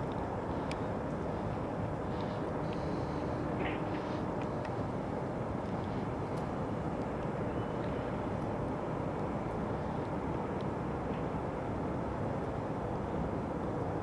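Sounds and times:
faint ticks: 0.0 - 4.9
low outdoor rumble: 0.0 - 14.0.

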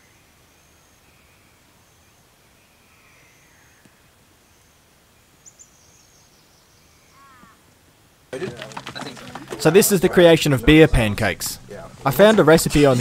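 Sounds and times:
faint bush ambience: 0.0 - 13.0
distant birds calling: 5.3 - 7.8.

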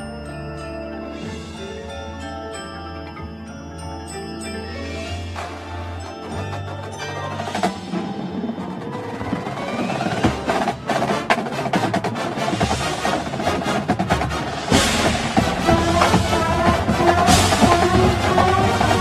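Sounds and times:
brass ensemble tones: 0.0 - 19.0
marching drums: 5.2 - 19.0.

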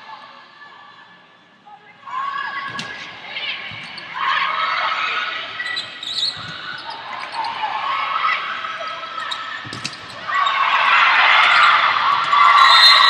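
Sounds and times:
sneakers squeaking on court: 5.6 - 7.6
players shouting: 6.8 - 13.0.

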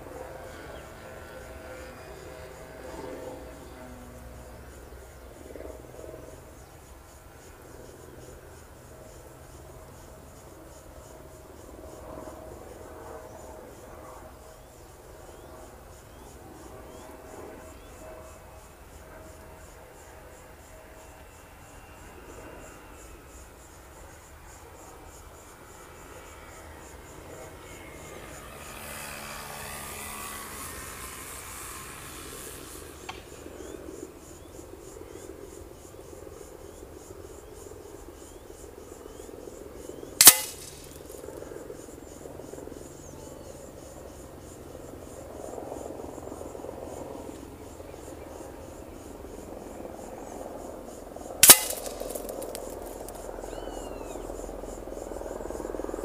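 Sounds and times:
insects chirping faintly: 0.0 - 56.0
wind through grass: 20.9 - 56.0
pellets cracking into paper target: 40.2 - 41.0, 51.4 - 53.2.

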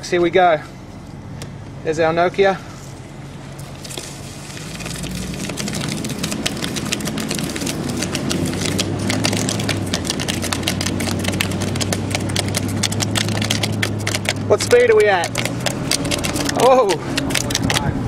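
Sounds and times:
car engine accelerating: 4.4 - 18.0.

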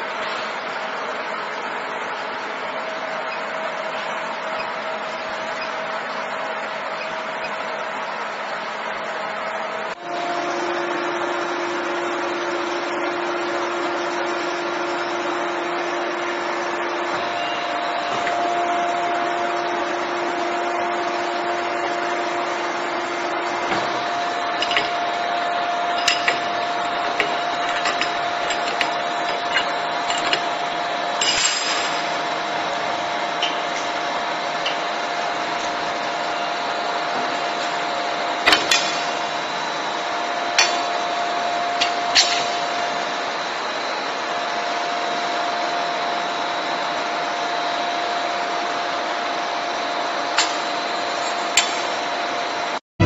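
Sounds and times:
machine humming and hissing: 0.0 - 52.8
metallic clanks and clicks: 24.6 - 25.0, 26.0 - 30.6.

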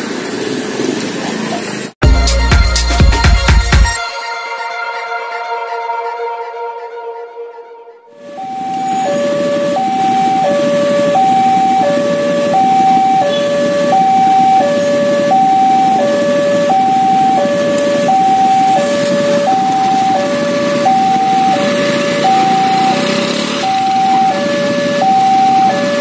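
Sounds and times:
level crossing two-tone alarm: 4.1 - 26.0.

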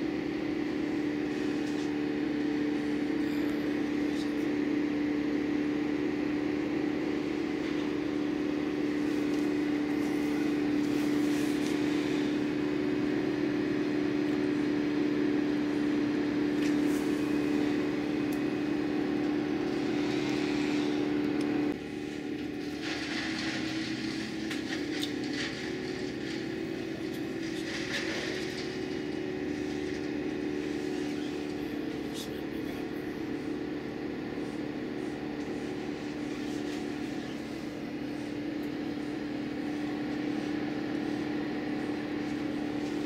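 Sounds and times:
wood chipper humming: 0.0 - 43.0
branches crackling and rattling: 22.0 - 31.8.

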